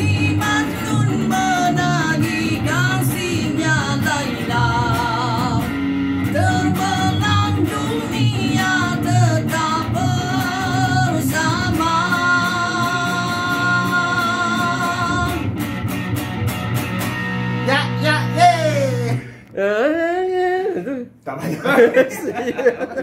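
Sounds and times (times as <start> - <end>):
man singing: 0.0 - 5.7, 6.4 - 15.5, 17.6 - 19.4
electric guitar: 0.0 - 19.7.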